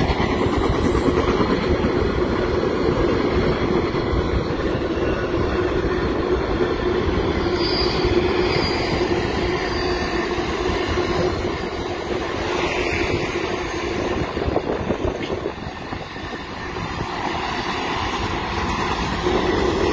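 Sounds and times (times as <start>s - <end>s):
freight train rumbling: 0.0s - 19.9s
faint high wheel squeal: 7.4s - 10.6s.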